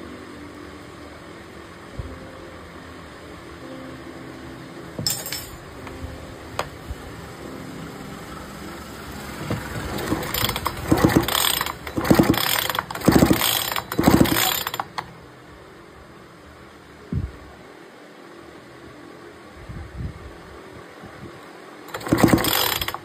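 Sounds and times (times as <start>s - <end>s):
chainsaw recoil starter pulls: 9.9s - 15.1s, 21.9s - 23.0s.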